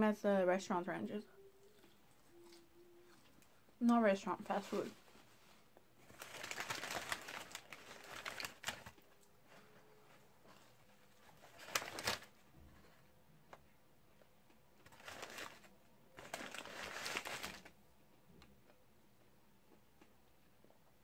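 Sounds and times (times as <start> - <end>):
chewing: 1.6 - 3.7
paper wrapper rustling: 4.4 - 12.4, 14.8 - 17.8.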